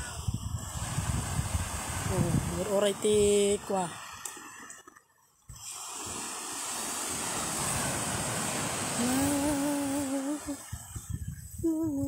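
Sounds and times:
wind on microphone: 0.0 - 4.0, 5.5 - 12.0
surf breaking on sand beach: 0.6 - 3.9, 5.6 - 11.1
person humming a held note: 9.0 - 10.6.

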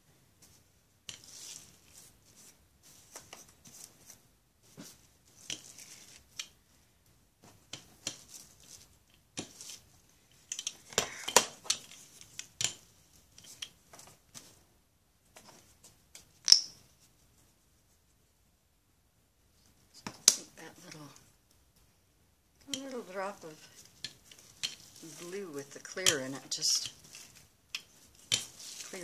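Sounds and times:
cling wrap crinkling: 22.8 - 29.0.

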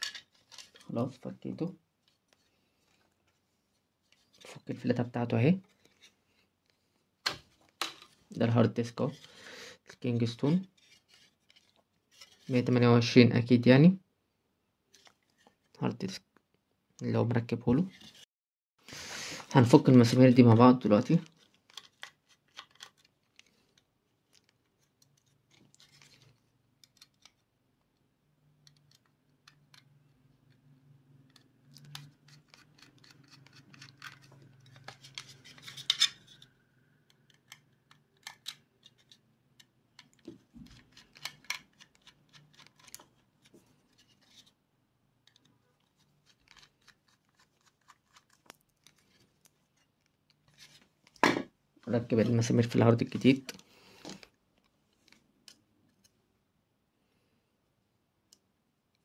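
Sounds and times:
screwdriver clicks and scrapes: 31.3 - 39.2, 40.0 - 43.1, 45.3 - 49.2.

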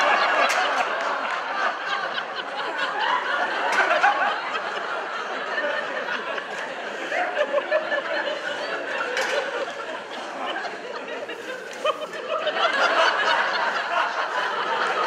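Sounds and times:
audience laughing: 0.0 - 15.0
overlapping voices chattering: 5.1 - 15.0.

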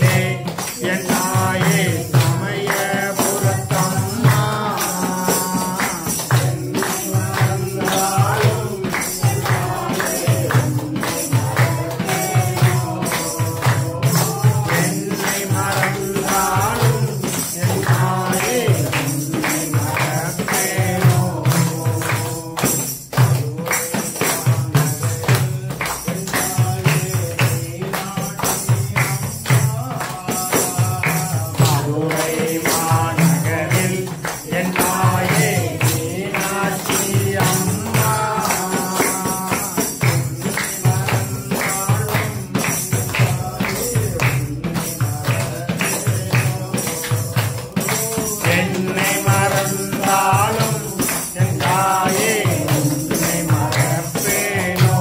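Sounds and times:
hand clapping: 0.0 - 55.0
jingle tambourine: 0.0 - 55.0
voices singing devotional song: 0.0 - 55.0.

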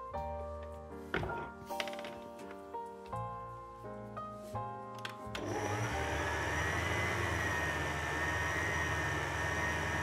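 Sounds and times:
stand mixer motor whine: 5.4 - 10.0.

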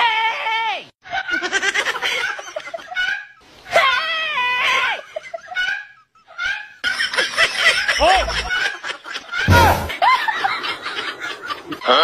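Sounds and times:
people laughing: 1.1 - 3.4, 4.6 - 12.0.

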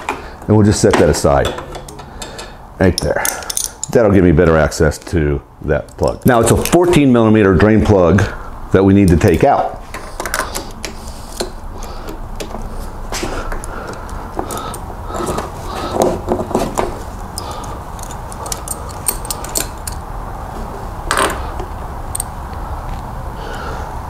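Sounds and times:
steady low hum: 0.0 - 24.0
wrench clicking on metal: 1.5 - 4.0, 17.4 - 20.1, 22.1 - 22.3.

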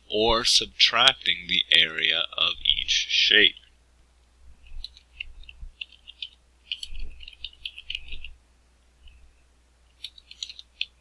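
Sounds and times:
keyboard typing: 4.6 - 8.4, 10.0 - 11.0.

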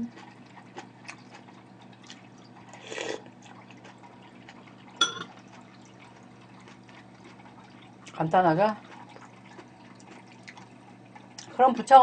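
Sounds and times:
steady low hum: 0.0 - 12.0
wet slurp: 0.2 - 4.7
metal spoon clinking ceramic bowl: 5.0 - 5.3.

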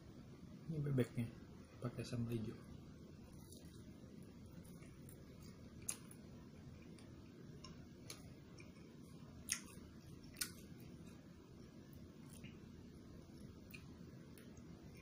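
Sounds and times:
faint steady hiss: 0.0 - 15.0
man chewing food: 3.2 - 15.0.

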